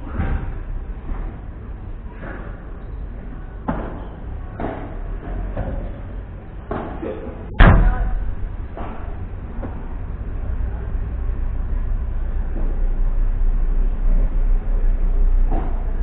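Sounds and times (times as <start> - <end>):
ball hitting rackets and court: 3.6 - 6.0, 6.7 - 10.2
loud heavy bang: 7.5 - 12.0.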